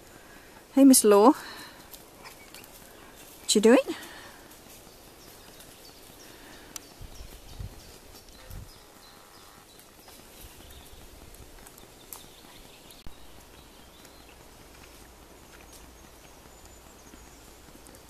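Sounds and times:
faint high bird chirps: 5.2 - 11.0.

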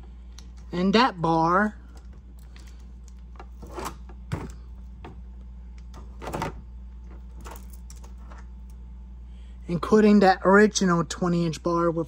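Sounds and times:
steady low hum: 0.0 - 12.0
handling clicks and rustles: 1.9 - 8.8.

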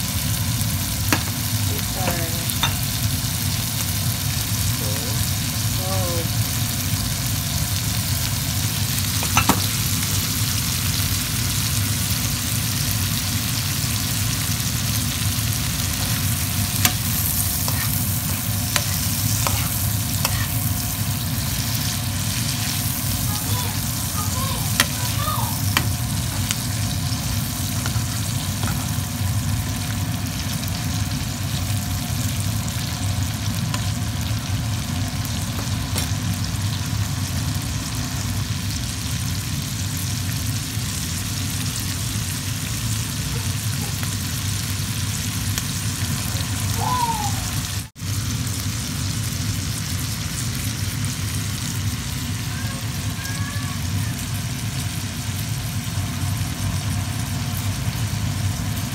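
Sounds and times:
green beans sizzling in oil: 0.0 - 58.9
metal spoon clinking: 2.6 - 2.9, 9.3 - 9.6.

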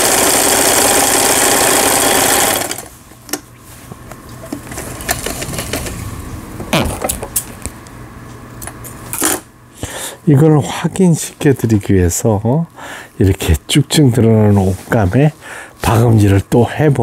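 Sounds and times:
sewing machine running fast: 0.0 - 2.9.

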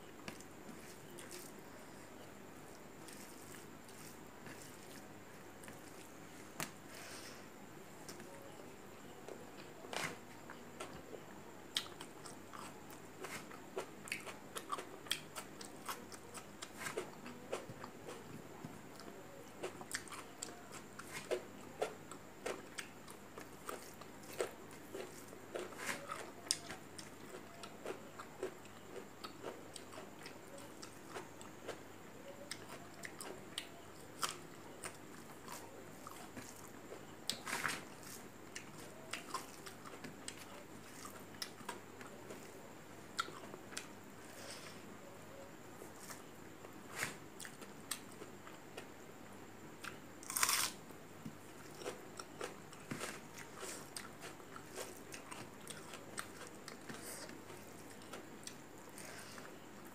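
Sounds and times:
crunching bite: 49.8 - 50.8.

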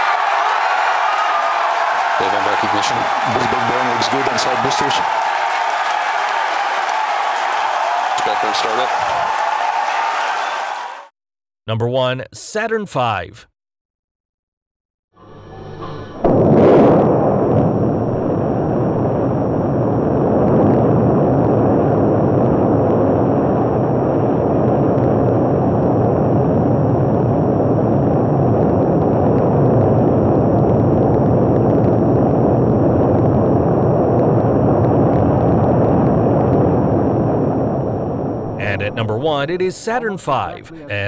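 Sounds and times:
rocket engines rumbling: 2.2 - 5.1, 15.2 - 41.0.

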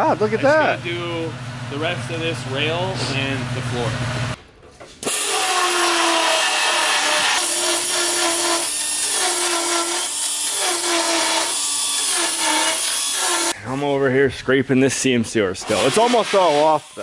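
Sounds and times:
belt sander grinding metal: 5.0 - 13.6, 15.6 - 17.0.

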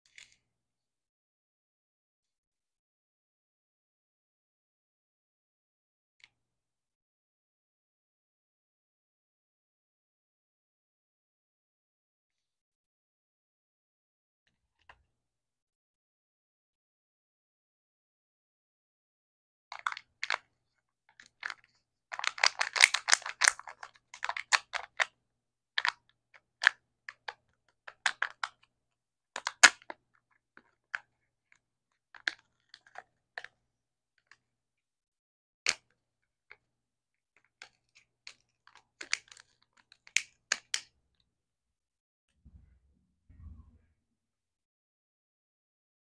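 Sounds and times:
plastic lid crinkling and crackling: 21.2 - 25.1, 37.6 - 40.8.

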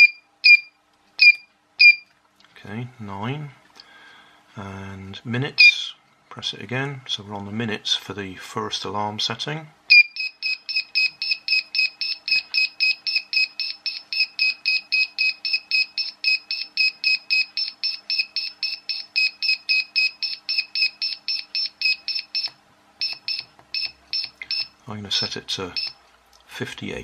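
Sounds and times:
buzzer beeping rapidly: 0.0 - 2.0, 9.9 - 24.7.

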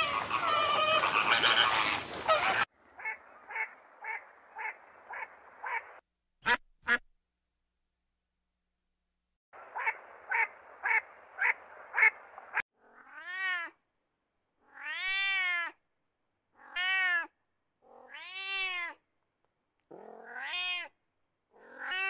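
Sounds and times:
duck quacking: 0.9 - 7.0
wild cat meowing: 12.8 - 13.8, 14.6 - 15.8, 16.6 - 19.0, 19.9 - 22.0.

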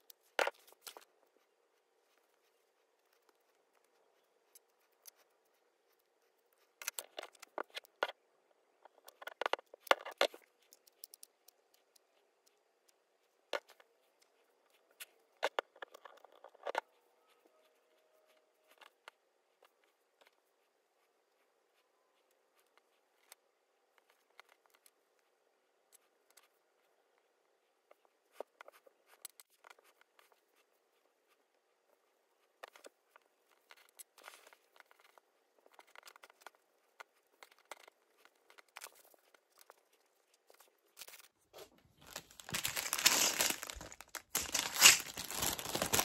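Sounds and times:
fabric rustling: 41.6 - 46.0.

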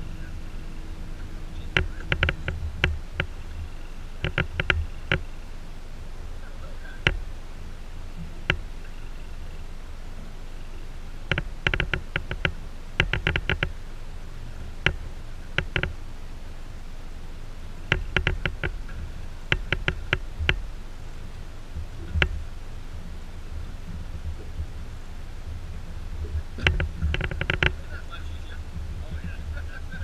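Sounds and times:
steady low rumble: 0.0 - 30.0
sharp light clicks: 4.2 - 5.3, 11.3 - 13.7, 15.6 - 16.0, 17.9 - 18.8.

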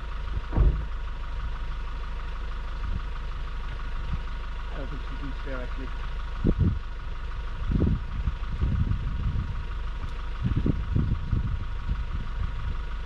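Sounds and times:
truck engine idling: 0.0 - 13.0
wind buffeting microphone: 6.4 - 13.0.

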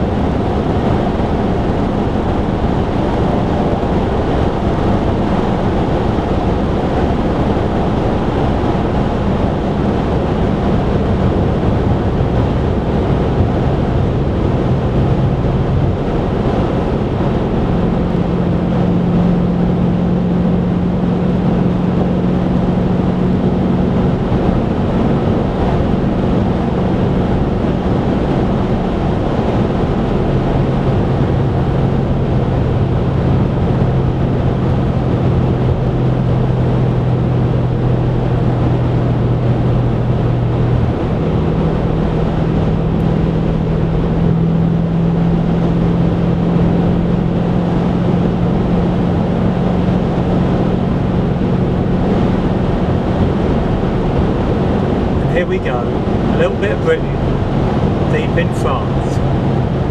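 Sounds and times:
low engine drone: 0.0 - 59.9
tyre and road noise: 20.9 - 59.9.

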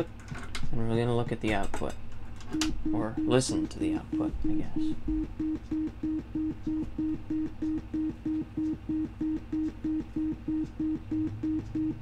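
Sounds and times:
faint low hum: 0.0 - 12.0
gated synthesizer tone beeping: 2.5 - 12.0.

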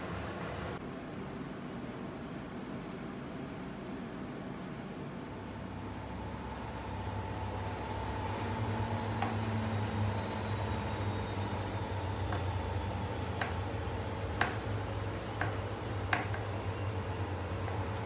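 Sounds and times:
low mechanical hum: 0.0 - 18.0
knife tapping on cutting board: 14.4 - 14.6.

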